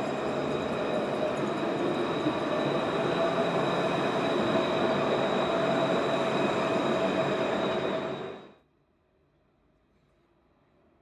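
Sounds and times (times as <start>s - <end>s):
tram rolling rumble: 0.0s - 8.5s.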